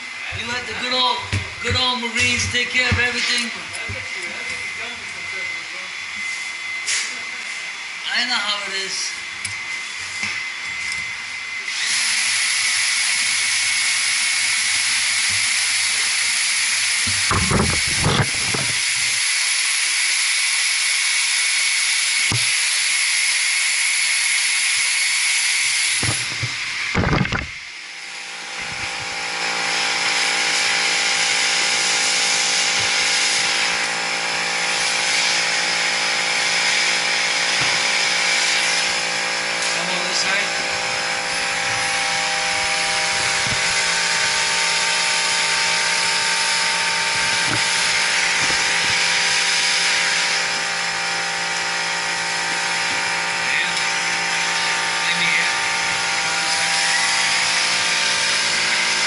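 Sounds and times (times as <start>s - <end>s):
gas torch hissing: 0.0s - 59.0s
steady hum: 36.6s - 56.8s.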